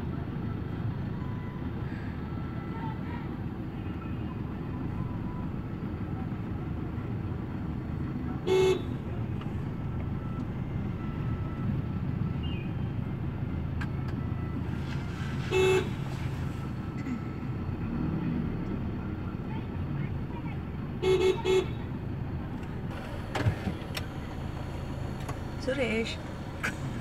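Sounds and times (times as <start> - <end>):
moving vehicle rumble: 0.0 - 27.0
road traffic: 0.0 - 27.0
vehicle horn beeps: 8.4 - 9.2, 14.4 - 17.4, 21.0 - 21.9.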